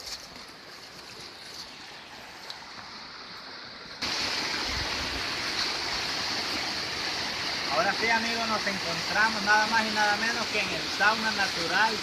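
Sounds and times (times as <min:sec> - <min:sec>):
low rush of flowing water: 0:00.1 - 0:12.0
waterfall rushing: 0:04.0 - 0:12.0.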